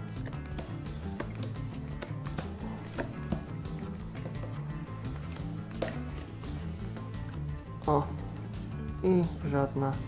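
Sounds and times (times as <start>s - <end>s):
background music with low notes: 0.0s - 10.0s
card tap on table: 0.2s - 7.2s.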